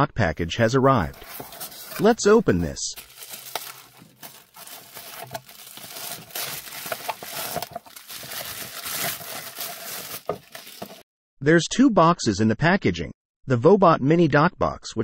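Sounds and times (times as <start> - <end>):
bubble wrap crackling: 1.1 - 11.0.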